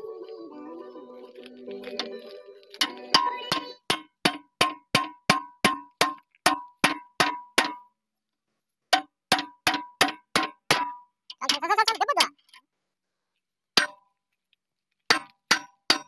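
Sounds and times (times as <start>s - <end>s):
hammer striking metal pin: 2.8s - 7.8s, 8.9s - 11.0s, 15.1s - 16.0s.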